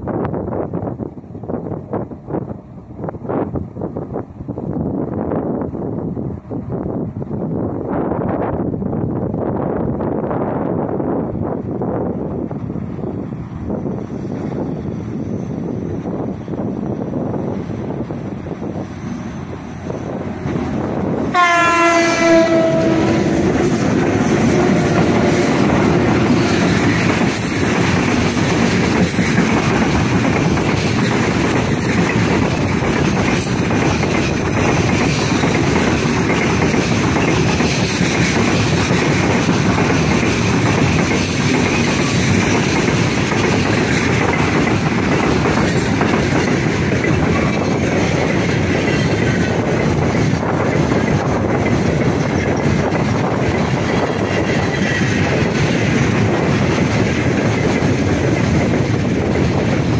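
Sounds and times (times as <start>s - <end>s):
freight train rumbling by: 0.0s - 59.9s
locomotive horn blast: 21.3s - 26.0s.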